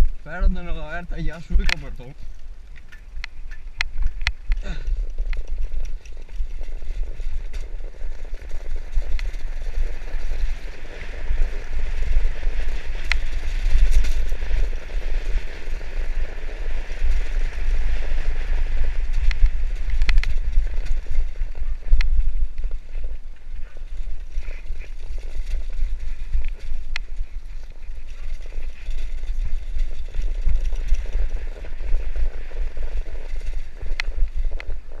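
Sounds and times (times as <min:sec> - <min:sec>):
bike rattling over bumps: 0:00.0 - 0:35.0
bike tyres rumbling: 0:00.0 - 0:35.0
wind buffeting microphone: 0:00.0 - 0:35.0.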